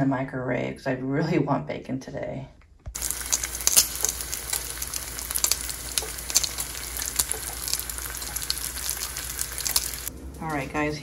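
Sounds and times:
bacon sizzling in a pan: 0:03.0 - 0:10.7.

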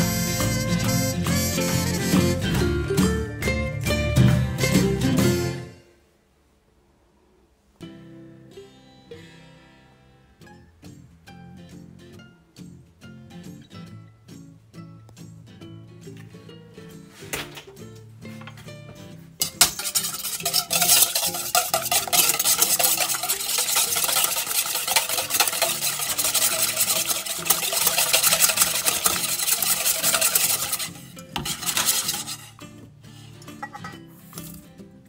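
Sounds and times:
faint background music: 0:07.8 - 0:35.0
whisk beating in metal bowl: 0:19.4 - 0:32.6.

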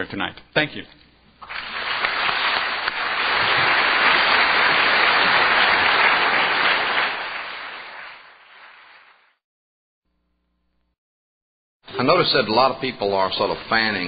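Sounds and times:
audience applauding: 0:01.4 - 0:09.4.

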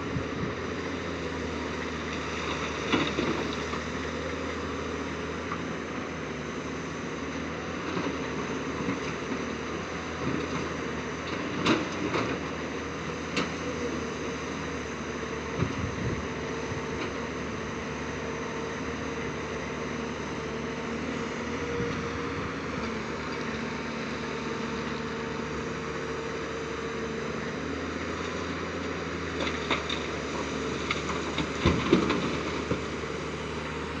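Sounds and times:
excavator diesel engine: 0:00.0 - 0:34.0.

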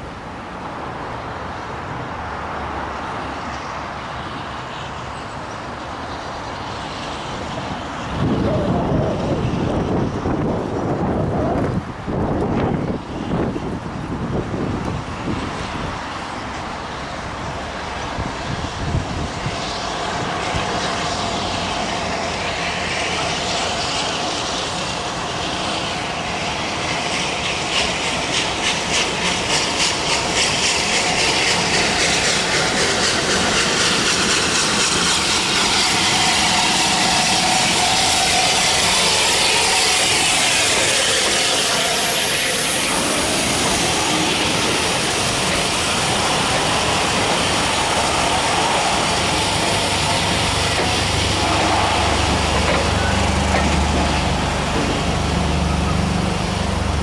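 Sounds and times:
train coaches rolling by: 0:00.0 - 0:57.0
steam locomotive exhaust beats: 0:03.5 - 0:57.0
steam hissing: 0:13.2 - 0:57.0.

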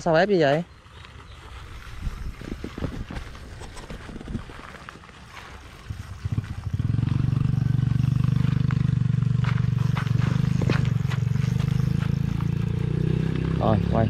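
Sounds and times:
small engine humming: 0:05.6 - 0:14.0.

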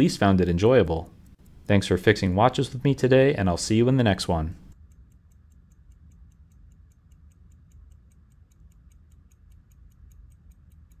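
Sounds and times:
low steady hum: 0:00.0 - 0:11.0
pocket watch ticking: 0:04.7 - 0:11.0.

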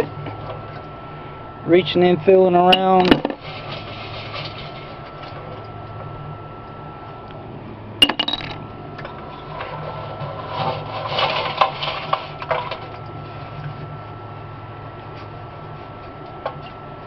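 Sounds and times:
metal piece dropped into bucket: 0:08.0 - 0:09.2.

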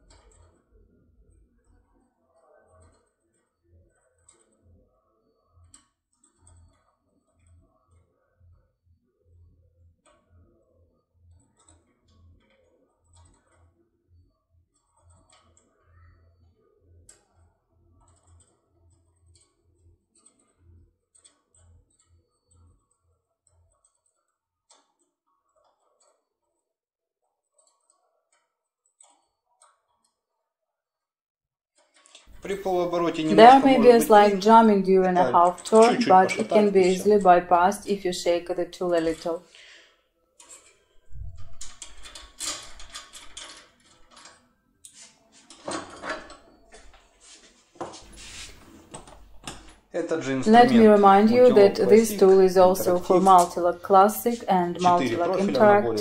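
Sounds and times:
metal tools clicking and clattering: 0:41.4 - 0:44.4.

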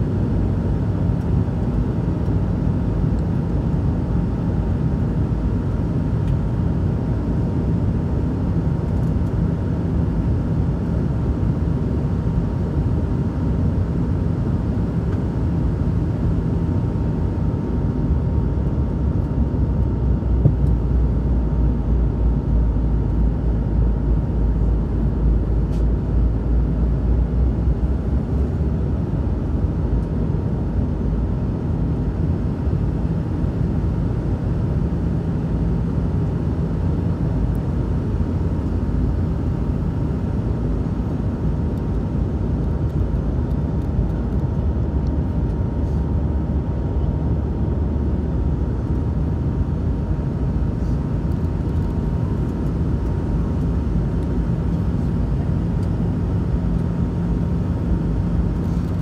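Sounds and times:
airplane cabin rumble: 0:08.9 - 0:31.7, 0:36.0 - 0:59.0.

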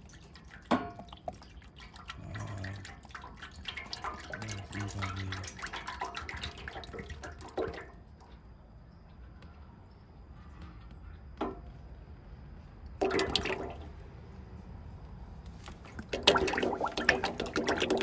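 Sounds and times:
jug glugging: 0:00.0 - 0:08.3, 0:12.9 - 0:14.0, 0:15.9 - 0:18.0
oil pouring and splashing: 0:00.0 - 0:08.4, 0:12.9 - 0:14.0, 0:15.7 - 0:18.0.

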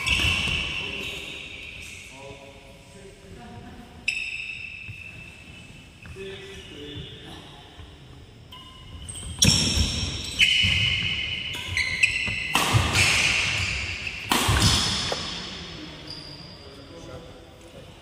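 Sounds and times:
rackets hitting shuttlecock: 0:09.3 - 0:15.6.

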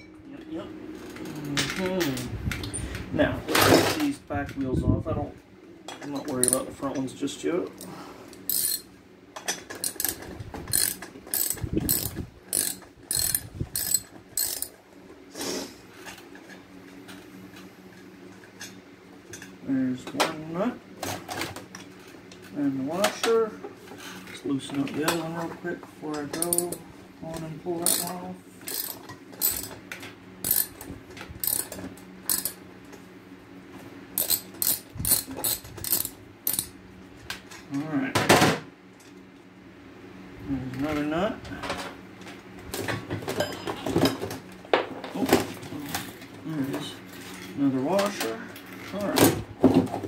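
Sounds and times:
socket wrench ratcheting clicks: 0:08.5 - 0:08.8, 0:09.8 - 0:14.7, 0:27.8 - 0:28.1, 0:28.7 - 0:29.7, 0:30.4 - 0:30.7, 0:31.4 - 0:31.7, 0:32.3 - 0:32.6, 0:34.2 - 0:36.7
hand tool metallic clicks: 0:09.8 - 0:14.7.

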